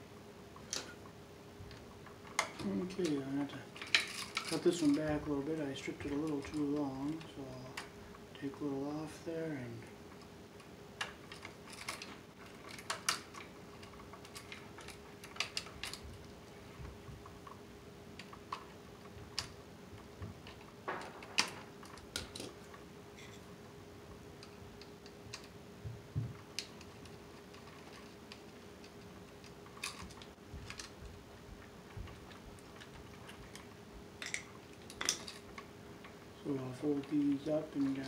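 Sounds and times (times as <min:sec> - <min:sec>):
faint steady hum: 0:00.0 - 0:38.0
wires being bent and handled: 0:00.5 - 0:38.0.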